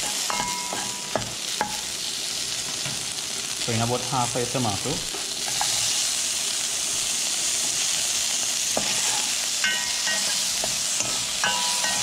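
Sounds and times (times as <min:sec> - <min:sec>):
spoon knocking and scraping pot: 0:00.0 - 0:01.8, 0:08.7 - 0:12.0
vegetables sizzling in oil: 0:00.0 - 0:12.0.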